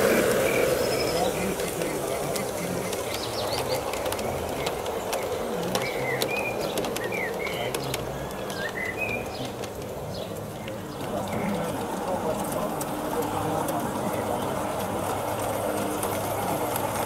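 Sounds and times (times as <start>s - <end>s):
birds chirping and whistling: 0.0s - 11.6s
low background murmur: 0.0s - 17.0s.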